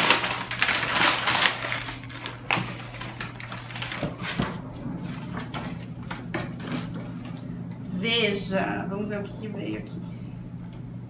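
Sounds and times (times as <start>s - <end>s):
packing paper crinkling: 0.0s - 4.5s.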